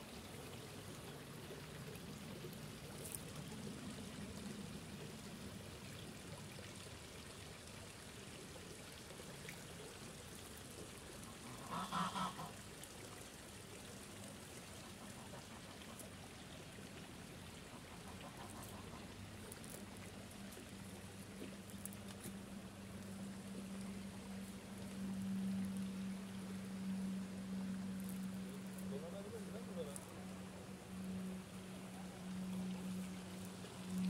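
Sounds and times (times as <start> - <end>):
water trickling: 0.0 - 34.0
goose honking: 11.4 - 12.5, 18.0 - 19.0.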